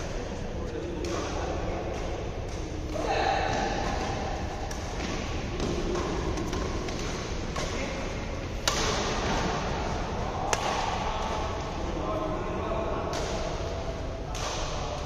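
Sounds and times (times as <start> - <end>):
steady background noise: 0.0 - 15.0
rackets striking shuttlecock: 1.0 - 9.7, 10.4 - 11.4, 13.1 - 15.0.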